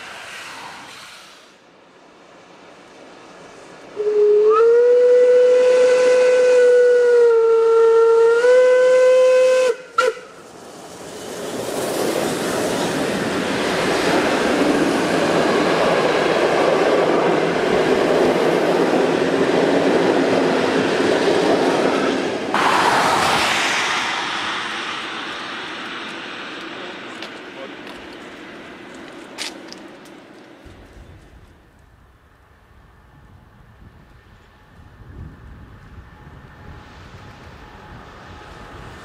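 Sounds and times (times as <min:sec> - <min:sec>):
steam hiss: 0:00.0 - 0:01.7, 0:08.4 - 0:16.1, 0:21.8 - 0:29.0
train rolling past: 0:00.0 - 0:07.5, 0:08.3 - 0:39.0
steam locomotive whistle: 0:04.0 - 0:10.4.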